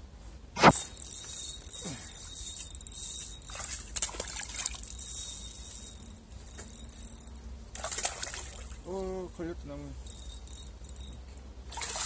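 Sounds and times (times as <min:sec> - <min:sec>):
fish splashing at water surface: 0:07.8 - 0:08.8, 0:11.7 - 0:12.0.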